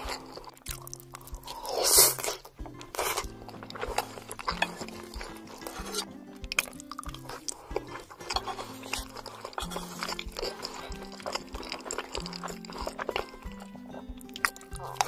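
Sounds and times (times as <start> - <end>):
background music low notes: 0.0 - 15.0
chewing with mouth clicks: 0.0 - 15.0.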